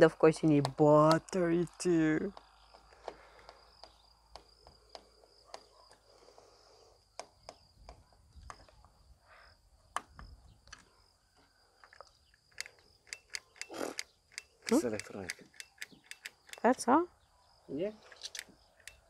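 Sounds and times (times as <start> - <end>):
plastic parts clicking: 11.8 - 16.7.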